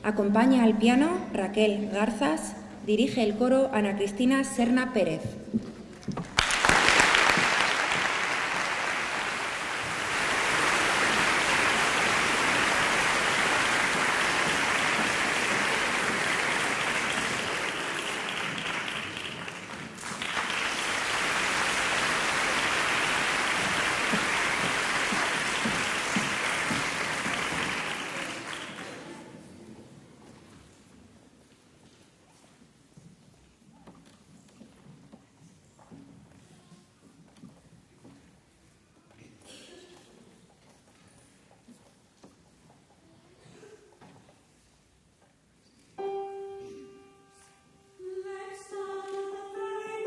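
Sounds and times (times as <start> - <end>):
audience applauding: 6.2 - 29.3.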